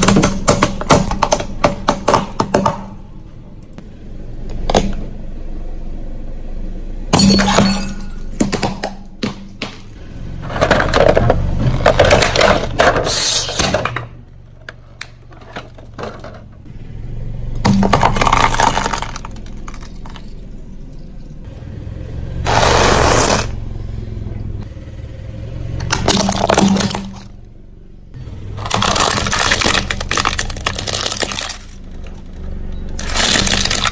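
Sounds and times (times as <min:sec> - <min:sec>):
low car engine hum: 0:00.0 - 0:33.9
tyre crushing brittle objects: 0:17.6 - 0:20.3, 0:25.9 - 0:27.3, 0:28.5 - 0:32.4, 0:33.0 - 0:33.9.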